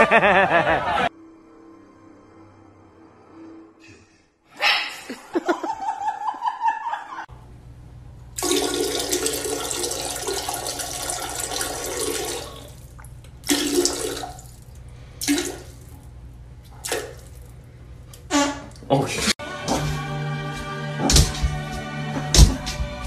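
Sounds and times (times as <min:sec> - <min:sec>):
toilet flushing: 0:08.4 - 0:16.0.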